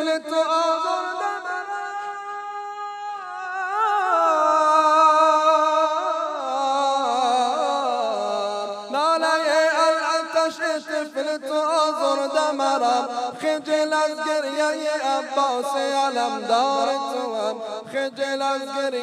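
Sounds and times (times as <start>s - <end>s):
man chanting mourning elegy: 6.6s - 19.0s.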